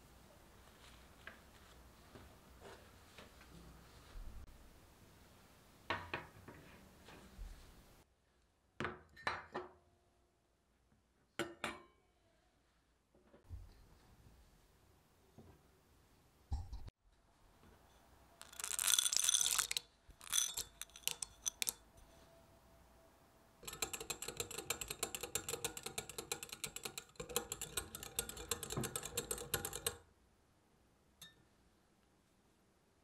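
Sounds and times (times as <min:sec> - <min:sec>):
whisk scraping glass cup: 0:18.4 - 0:21.8, 0:23.6 - 0:29.9.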